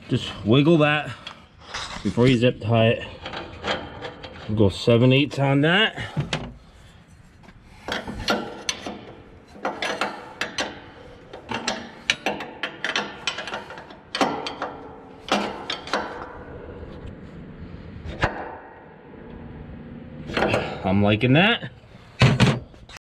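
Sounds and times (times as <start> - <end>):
wrench clicking and scraping: 7.7 - 16.4.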